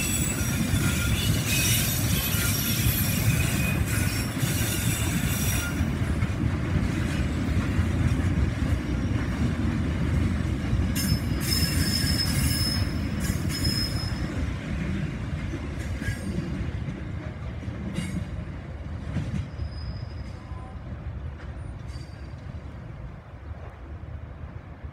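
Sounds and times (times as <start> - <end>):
high-pitched wheel squeal: 0.0 - 5.9, 11.0 - 14.4, 19.4 - 20.7
freight train rumbling on rails: 0.0 - 24.9.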